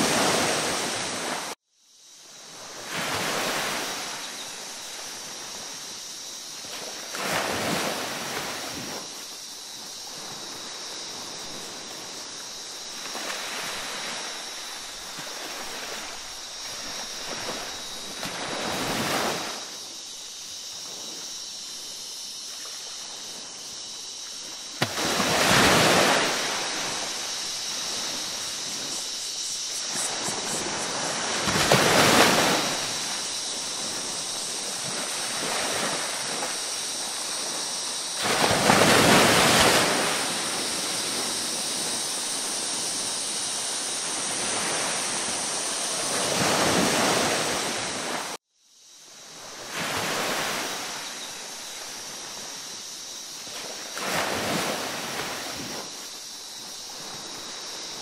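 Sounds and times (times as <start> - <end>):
ocean waves breaking: 0.0 - 1.6, 10.1 - 19.8, 24.4 - 43.1, 44.0 - 48.4, 53.5 - 56.1.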